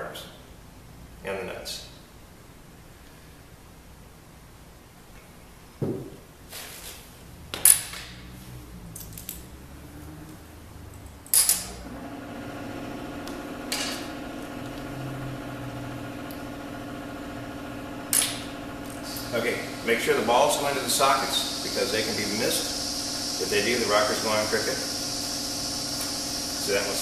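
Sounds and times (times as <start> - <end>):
steady machine hum: 8.6 - 27.0.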